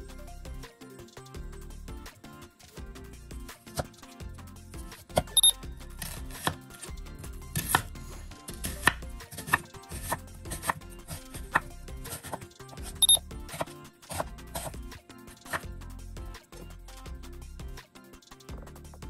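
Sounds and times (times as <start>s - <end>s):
knife slicing onion on cutting board: 6.0s - 6.9s, 7.5s - 15.6s.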